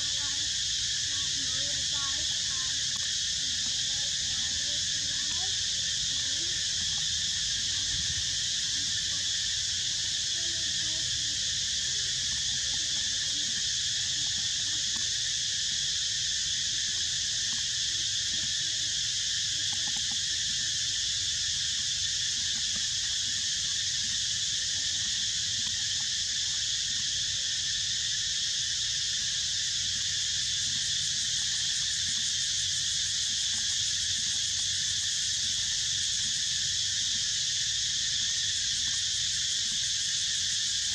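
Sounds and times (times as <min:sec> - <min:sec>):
insect chorus: 0:00.0 - 0:40.9.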